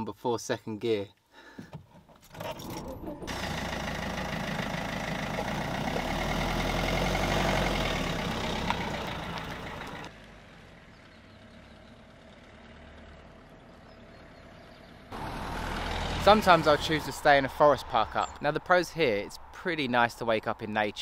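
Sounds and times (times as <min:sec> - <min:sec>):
van engine running: 0:02.5 - 0:18.4.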